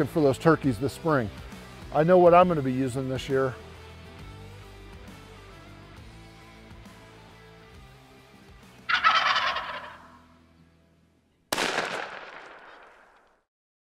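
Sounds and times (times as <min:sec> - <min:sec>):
turkey gobbling: 0:08.9 - 0:10.2
shotgun shot with echo: 0:11.5 - 0:13.3.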